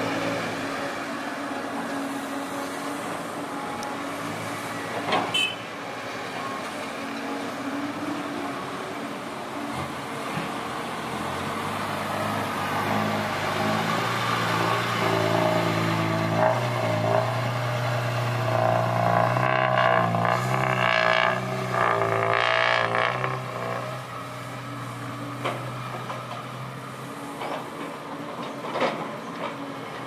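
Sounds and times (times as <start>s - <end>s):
diesel truck engine under load: 6.0s - 30.0s.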